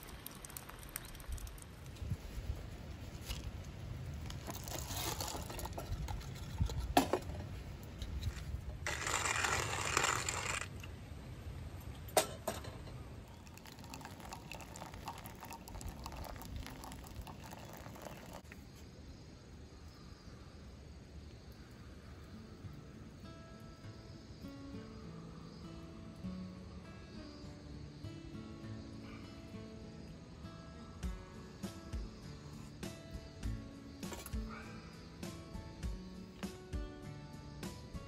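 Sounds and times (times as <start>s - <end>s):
hand coffee mill grinding beans: 4.3s - 6.9s, 8.2s - 10.9s, 13.5s - 18.4s.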